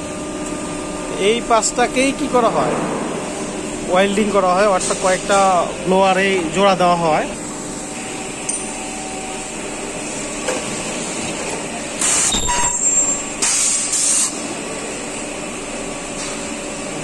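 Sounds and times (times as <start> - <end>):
steady machine hum: 0.0 - 17.0
high-pitched ultrasonic welding bursts: 12.0 - 14.4.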